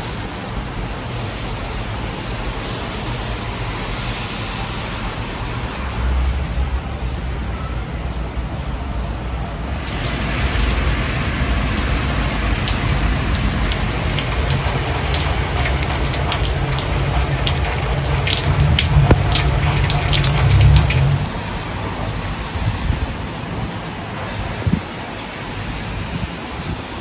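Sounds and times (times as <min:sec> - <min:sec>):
raindrops pattering on a surface: 0:09.6 - 0:21.4
heavy rain pouring: 0:09.6 - 0:21.9.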